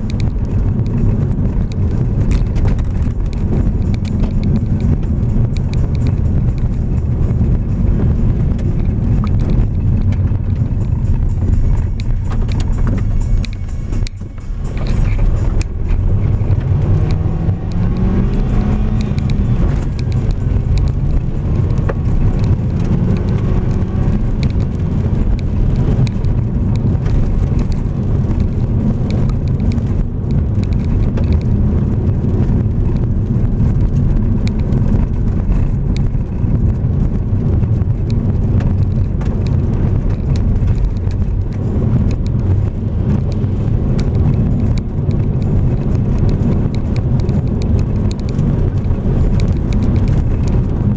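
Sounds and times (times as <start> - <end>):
car engine and tyre rumble: 0.0 - 50.9
gravel ticking under wheels: 0.0 - 50.9.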